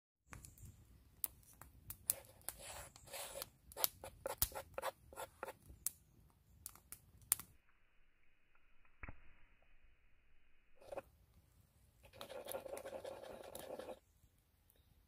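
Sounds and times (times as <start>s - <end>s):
wood fire crackling: 5.4s - 7.6s
wooden spoon scraping flour: 10.8s - 11.0s, 12.1s - 14.0s.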